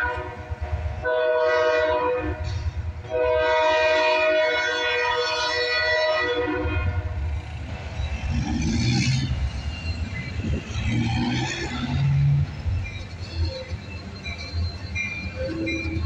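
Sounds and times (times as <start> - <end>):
locomotive air horn: 0.0 - 7.5
locomotive rumble: 0.0 - 16.0.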